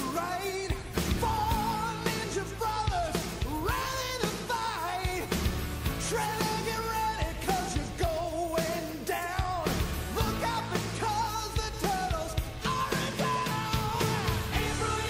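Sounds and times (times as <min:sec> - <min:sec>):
pop-rock song with singing: 0:00.0 - 0:15.0
steady drum beat: 0:00.0 - 0:15.0.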